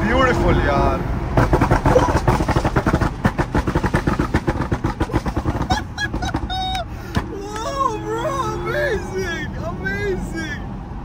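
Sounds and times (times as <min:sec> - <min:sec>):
exhaust pops and bangs: 0:01.3 - 0:07.3
man shouting excitedly: 0:07.3 - 0:10.7.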